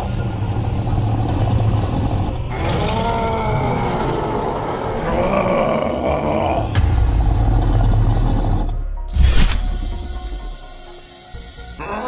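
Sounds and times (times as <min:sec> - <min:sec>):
monster roars and growls: 0:00.0 - 0:09.6
low rumble: 0:06.6 - 0:10.5.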